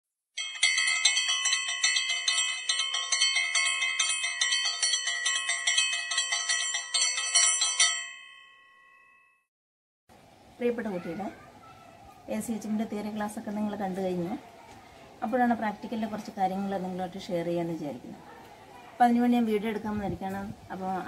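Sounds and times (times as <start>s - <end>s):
bell-like chiming jingle: 0.4s - 9.4s.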